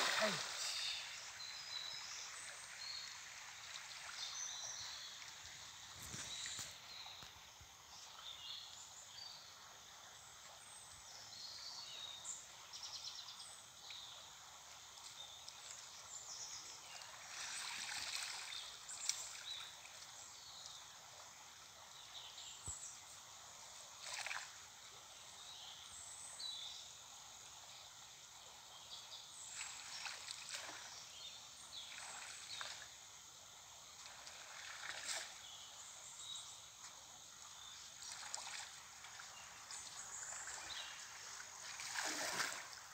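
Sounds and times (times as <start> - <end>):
water sloshing and splashing: 0.0 - 0.9, 34.0 - 35.4, 37.9 - 42.9.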